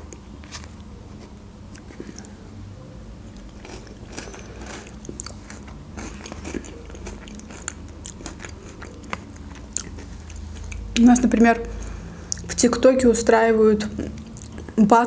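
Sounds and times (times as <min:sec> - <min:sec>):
chewing and mouth clicks: 0:03.3 - 0:11.0, 0:13.9 - 0:14.8.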